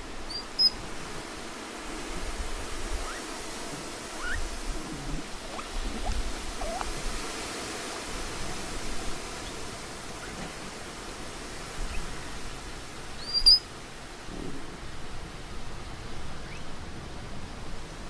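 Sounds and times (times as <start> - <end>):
outdoor background hiss: 0.0 - 18.0
faint calls: 2.8 - 12.2.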